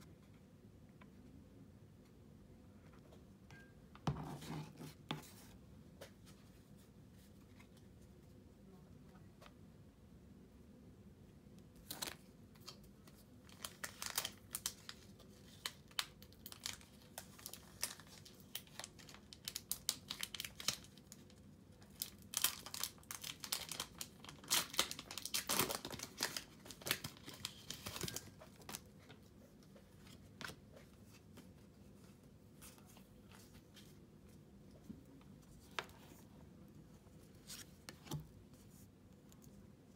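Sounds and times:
packaging crinkling and tearing: 11.8 - 28.9.

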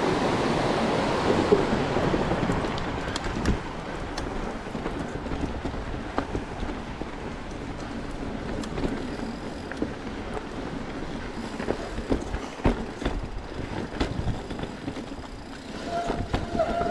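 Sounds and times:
bike tyres rumbling on dirt: 0.0 - 16.9
bike clattering over rocks: 11.4 - 16.9
wind on microphone: 15.7 - 16.9.

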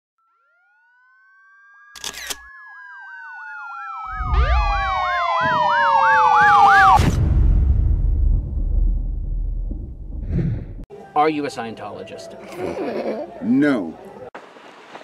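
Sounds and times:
police siren wailing: 0.2 - 7.2
low rumble: 4.1 - 5.1, 7.0 - 10.8.

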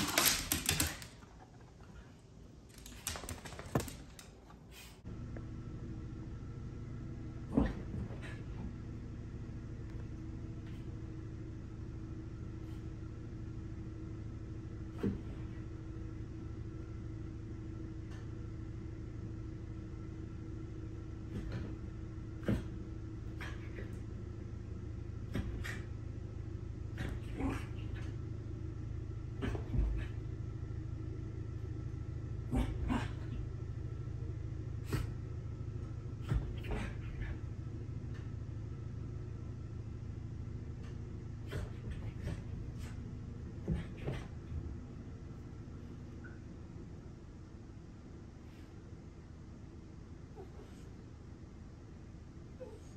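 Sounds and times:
low machine hum: 0.0 - 52.9
small dog play growling: 7.4 - 8.8, 21.2 - 24.2, 25.2 - 26.0, 26.8 - 28.3, 29.3 - 30.3, 32.4 - 33.5, 34.8 - 35.2, 36.1 - 37.5, 40.9 - 44.7.

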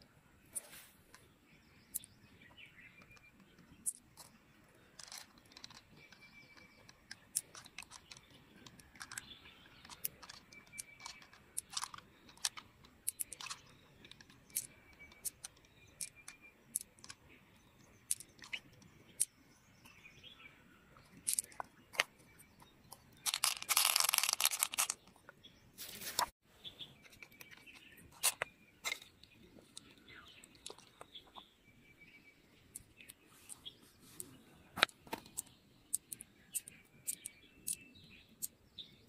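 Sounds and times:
pearls clicking together: 3.0 - 17.2, 17.9 - 19.3, 21.0 - 22.1, 22.9 - 25.1, 29.2 - 31.1, 34.8 - 37.8.

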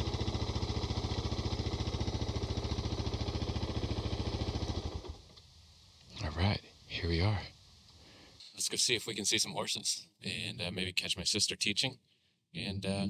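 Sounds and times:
motorcycle engine idling: 0.0 - 5.6.

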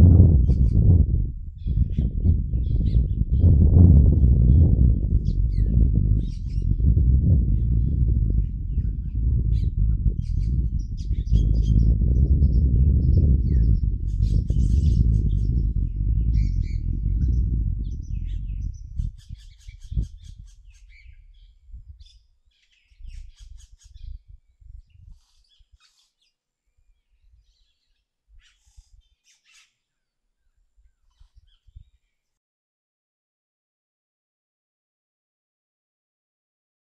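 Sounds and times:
low thumps: 0.0 - 19.3
loud low rumble: 0.0 - 20.2
small birds chirping: 0.4 - 32.2.

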